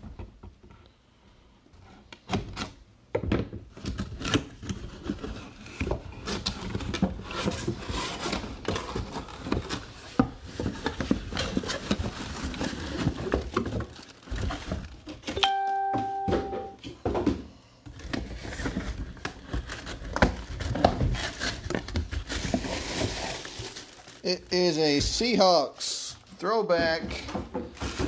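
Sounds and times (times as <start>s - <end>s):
plastic wrap crinkling: 4.0s - 15.3s, 18.0s - 28.0s.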